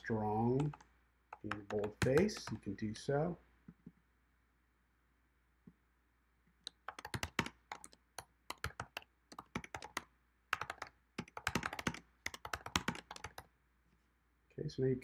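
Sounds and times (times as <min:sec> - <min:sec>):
keyboard typing: 0:00.5 - 0:02.6, 0:06.6 - 0:13.5.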